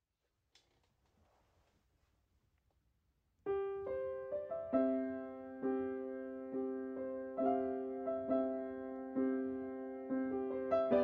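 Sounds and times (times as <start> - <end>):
slow piano music: 3.5 - 11.0.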